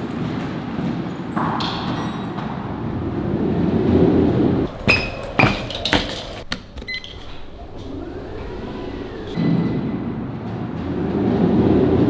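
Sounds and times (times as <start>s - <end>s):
low rushing rumble: 2.6s - 12.0s.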